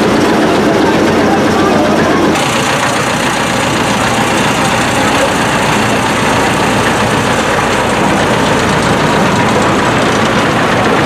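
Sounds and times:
road roller engine running: 0:00.0 - 0:11.0.

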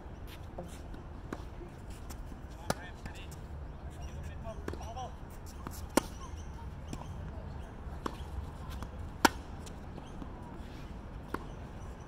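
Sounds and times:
tennis racket hitting ball: 0:08.0 - 0:10.2.

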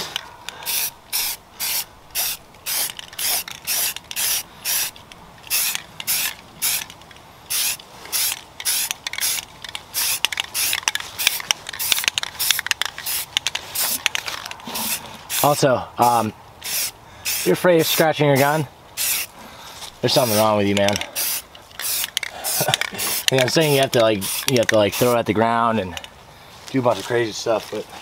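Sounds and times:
spray paint can rattling: 0:00.1 - 0:15.6, 0:16.6 - 0:19.3, 0:20.0 - 0:25.3.

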